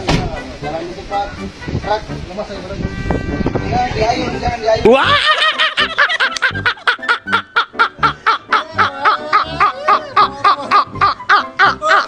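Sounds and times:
man laughing hard: 4.9s - 12.0s.

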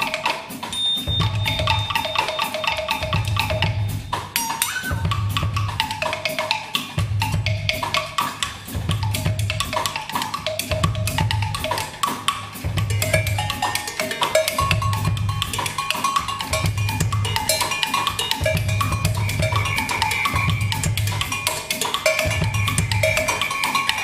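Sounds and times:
live band playing: 0.0s - 6.2s
drum kit and hand percussion: 0.0s - 24.0s.

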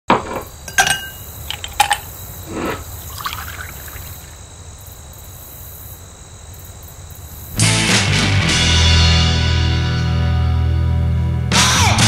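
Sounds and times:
high insect drone: 0.4s - 7.8s
sharp clinks with ringing tone: 0.7s - 2.1s
liquid pouring and trickling: 0.7s - 4.4s.

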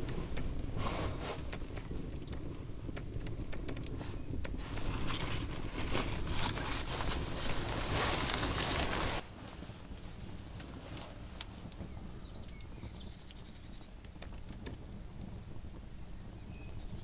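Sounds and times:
sleeping bag rustling: 0.0s - 2.3s, 4.0s - 9.8s
campfire crackling and popping: 0.0s - 17.0s
low wind rumble: 0.0s - 17.0s.

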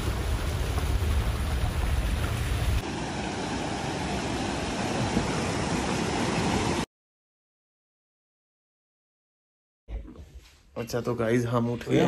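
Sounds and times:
stream rushing over rocks: 0.0s - 6.9s.

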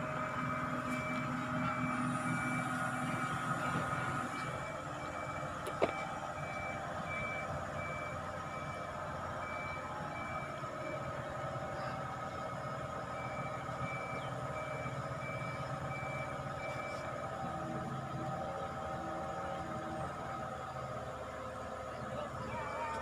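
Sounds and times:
warning alarm beeping: 0.0s - 11.2s, 22.4s - 23.0s
diesel engine running: 0.0s - 23.0s.

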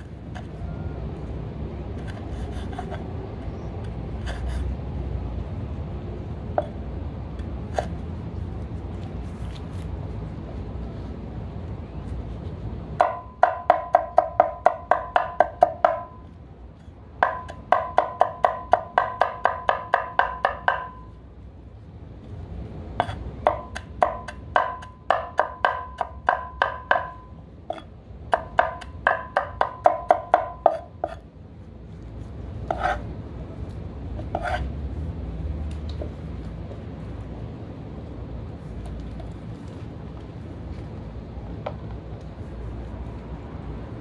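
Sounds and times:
cleaver chopping on wooden board: 17.2s - 21.0s, 23.0s - 31.2s.

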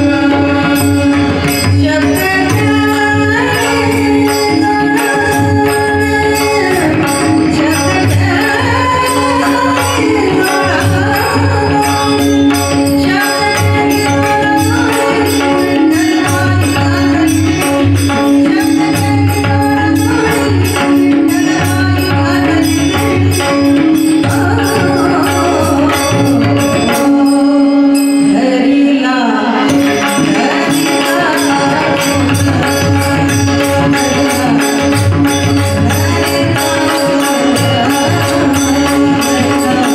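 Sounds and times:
woman singing: 0.0s - 39.9s
small hand cymbals: 0.6s - 28.8s.

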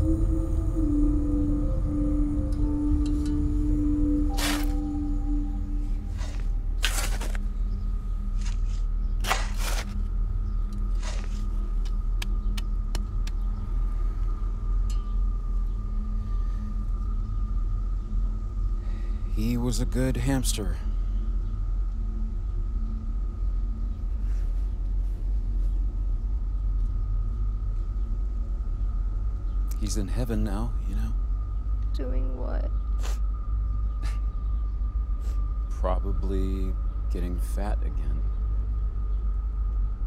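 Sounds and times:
high steady tone: 0.0s - 6.8s
low rumbling drone: 0.0s - 40.0s
shovel digging into soil: 4.4s - 4.8s, 6.2s - 7.4s, 8.4s - 10.0s, 11.0s - 11.4s.

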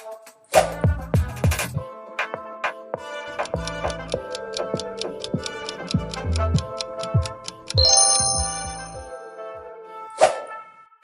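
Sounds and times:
light background music: 0.0s - 11.0s
bell-like chime: 7.8s - 9.5s.

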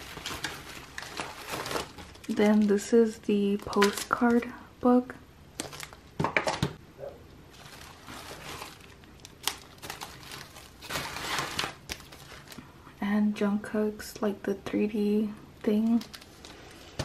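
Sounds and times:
plastic wrapping crinkling: 0.0s - 4.5s, 5.5s - 6.8s, 7.5s - 12.8s, 15.7s - 17.0s.

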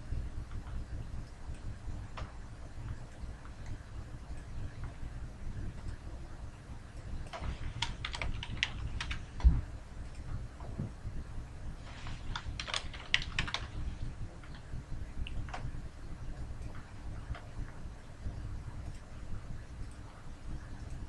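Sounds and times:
typing on computer keyboard: 7.3s - 9.5s, 12.2s - 13.8s.

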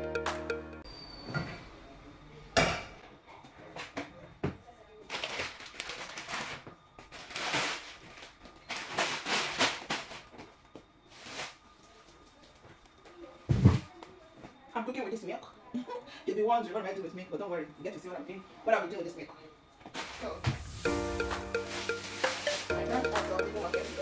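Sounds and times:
music: 0.0s - 0.9s, 20.6s - 24.0s
plastic bags crinkling: 5.1s - 10.3s.

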